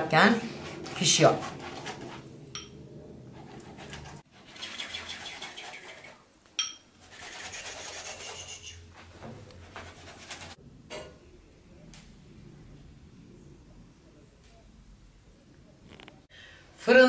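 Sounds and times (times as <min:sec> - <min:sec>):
pastry brush scratching: 0:00.5 - 0:02.3, 0:03.3 - 0:06.2, 0:07.0 - 0:09.0, 0:09.6 - 0:10.6.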